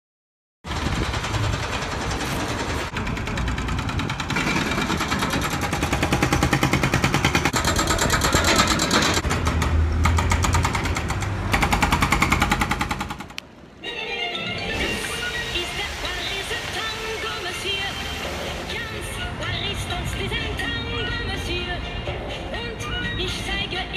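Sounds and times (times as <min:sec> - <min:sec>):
diesel engine running: 0:00.7 - 0:12.6
pavement breaker hammering: 0:00.7 - 0:13.4.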